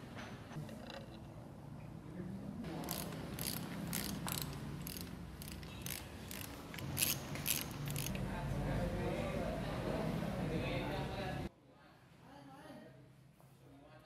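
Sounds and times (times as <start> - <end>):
ratchet wrench clicking: 2.8 - 8.2.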